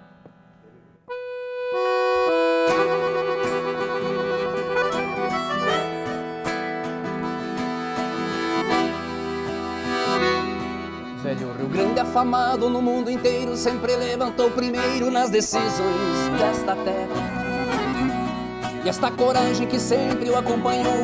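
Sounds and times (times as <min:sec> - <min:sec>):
strummed guitar: 0:00.0 - 0:21.0
accordion melody: 0:01.1 - 0:21.0.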